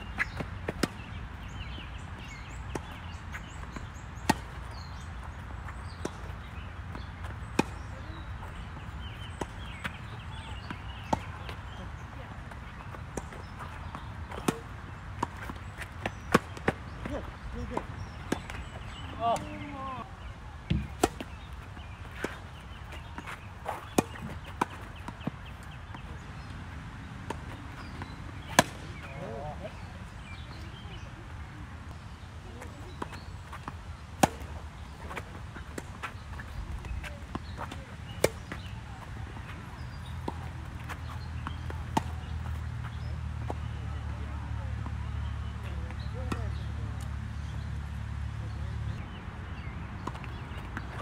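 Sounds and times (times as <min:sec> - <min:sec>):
tennis ball struck by racquets: 0:00.1 - 0:05.1, 0:05.9 - 0:07.9, 0:12.4 - 0:19.6, 0:20.6 - 0:26.5, 0:27.2 - 0:30.5, 0:32.9 - 0:43.8.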